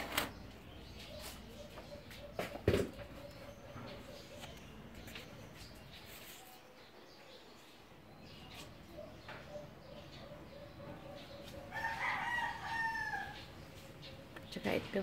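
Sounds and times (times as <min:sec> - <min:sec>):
rooster crowing: 0:11.7 - 0:13.5.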